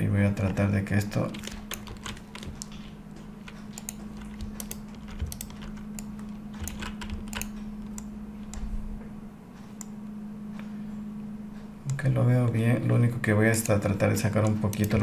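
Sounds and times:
low hum: 0:00.0 - 0:15.0
keyboard and mouse clicking: 0:00.4 - 0:08.7, 0:13.5 - 0:15.0.

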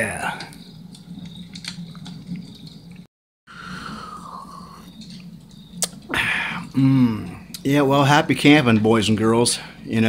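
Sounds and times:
steady low hum: 0:00.0 - 0:10.0
man sighing: 0:06.1 - 0:07.4.

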